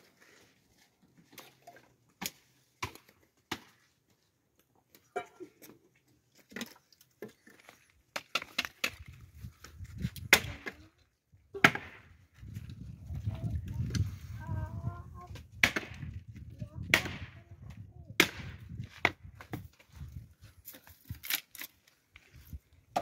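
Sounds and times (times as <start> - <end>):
sharp knocks and cracks: 2.2 - 3.9, 6.4 - 9.2, 10.2 - 10.8, 15.4 - 16.2, 16.8 - 17.4, 18.2 - 19.6.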